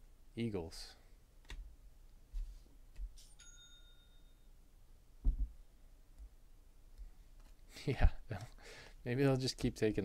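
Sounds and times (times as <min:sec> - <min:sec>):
bright bell-like ding: 0:03.4 - 0:04.5
dull thump: 0:05.2 - 0:05.6.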